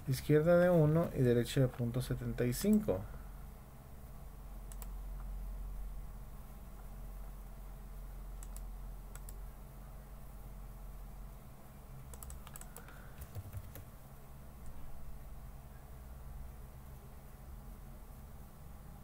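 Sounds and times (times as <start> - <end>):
low steady hum: 0.0 - 19.0
keyboard keystrokes and clicks: 4.7 - 5.3, 8.4 - 9.4, 12.1 - 13.9.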